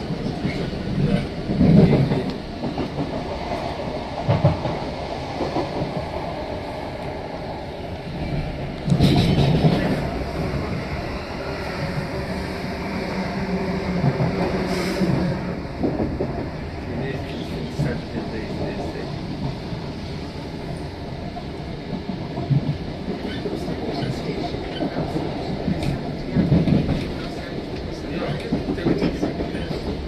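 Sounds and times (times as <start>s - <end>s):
train rumbling: 0.0s - 30.0s.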